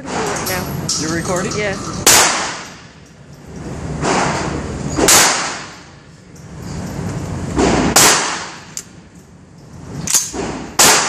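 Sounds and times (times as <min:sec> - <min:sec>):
gunshots with reverberant tail: 0:02.1 - 0:02.8, 0:04.0 - 0:05.8, 0:07.6 - 0:08.7, 0:10.2 - 0:11.0.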